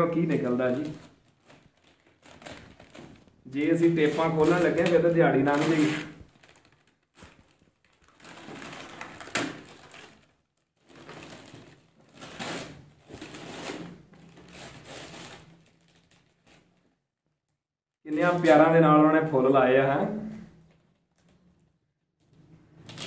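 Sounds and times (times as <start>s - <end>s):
paper crinkling: 0.2s - 17.0s.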